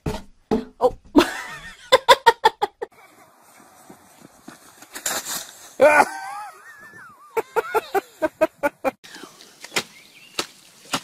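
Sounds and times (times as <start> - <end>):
person laughing: 1.2 - 3.1, 5.8 - 9.0.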